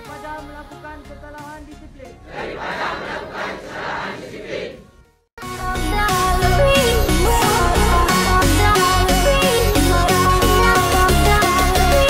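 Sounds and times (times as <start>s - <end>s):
crowd chanting in unison: 2.2s - 5.0s
electronic music with beat: 5.4s - 12.0s.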